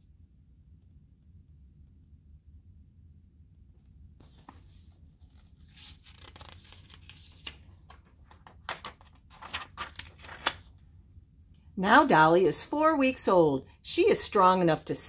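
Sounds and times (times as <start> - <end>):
book pages turning: 4.2 - 10.8
paper page flicks: 8.5 - 10.7.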